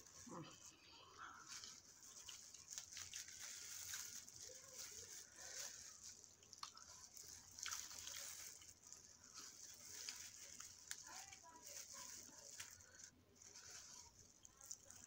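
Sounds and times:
wet chewing and sucking: 5.2s - 11.0s.

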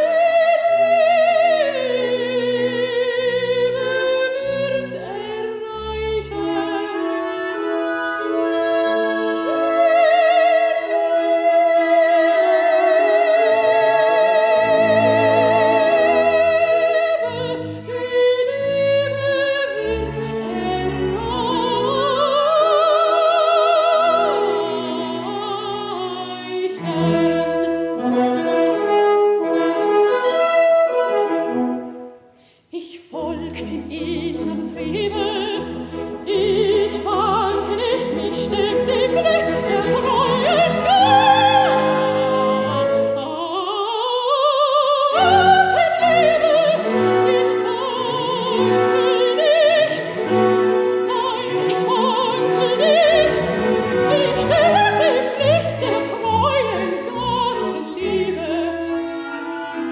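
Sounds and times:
woman singing opera: 0.0s - 28.1s, 32.7s - 59.9s
violin: 0.0s - 59.9s
bassoon: 26.8s - 32.2s.

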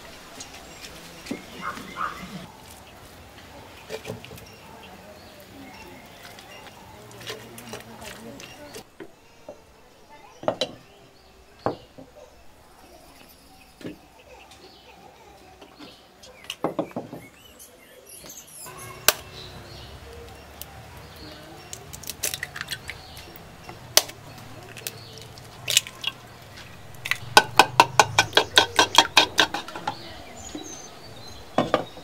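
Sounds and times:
clay pots clinking: 21.3s - 32.0s
fast run of taps: 27.1s - 30.6s.

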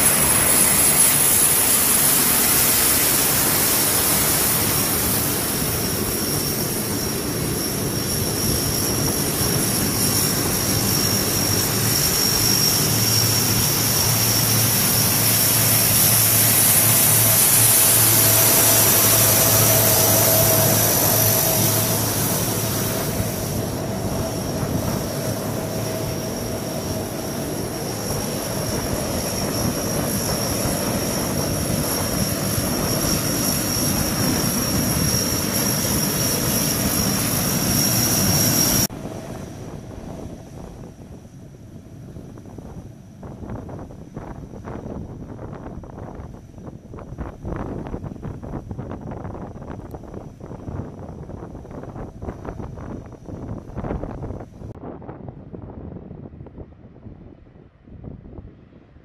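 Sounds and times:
high-pitched turbine whine: 0.0s - 57.4s
turboprop aircraft drone: 0.0s - 59.0s.

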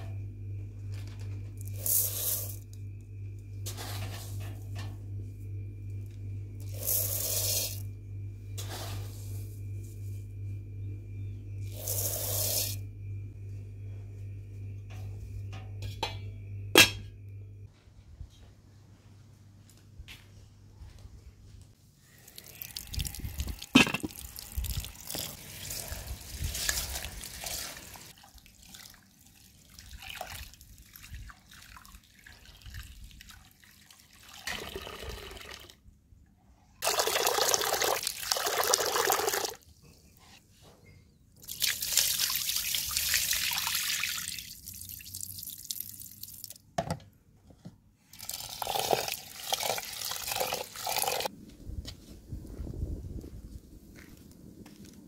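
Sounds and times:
water pouring into metal bowl: 22.2s - 35.7s, 36.8s - 39.6s, 41.5s - 46.5s, 48.2s - 51.3s
water splashing and dripping: 41.4s - 46.6s.

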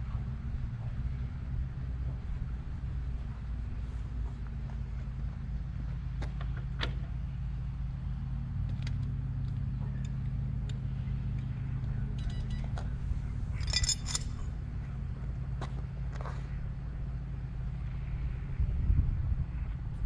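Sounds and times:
steady low hum: 0.0s - 20.0s
light clicks and clinks: 8.7s - 14.5s
keys jangling: 13.5s - 14.4s.

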